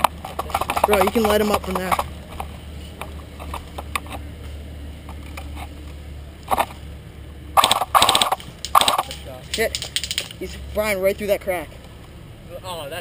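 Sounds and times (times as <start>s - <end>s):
low steady rumble: 0.0s - 13.0s
airsoft rifle full-auto bursts: 7.6s - 9.2s.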